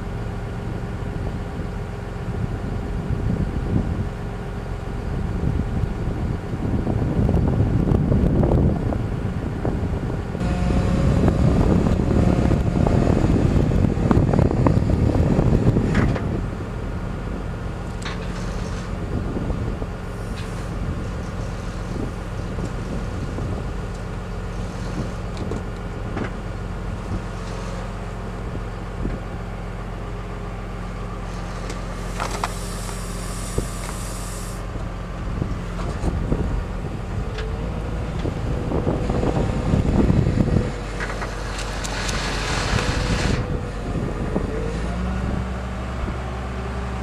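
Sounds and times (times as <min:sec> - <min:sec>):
diesel engine running: 0:00.0 - 0:47.0
thin whine: 0:10.3 - 0:19.0, 0:31.0 - 0:36.1
hiss: 0:32.0 - 0:34.6.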